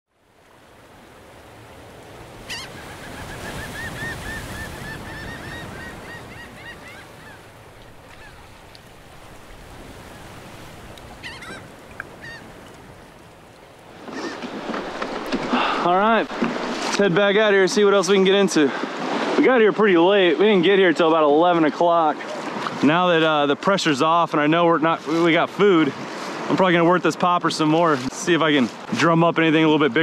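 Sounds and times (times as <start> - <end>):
wild birds calling: 2.3 - 16.9.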